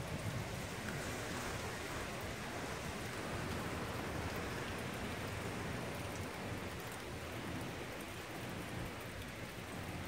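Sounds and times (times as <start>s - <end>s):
steady rain falling: 0.0s - 10.0s.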